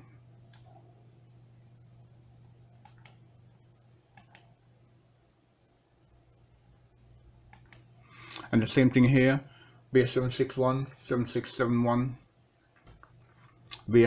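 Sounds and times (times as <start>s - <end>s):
low steady hum: 0.0s - 14.0s
computer mouse clicks: 2.8s - 3.2s, 4.1s - 4.6s, 7.5s - 8.5s.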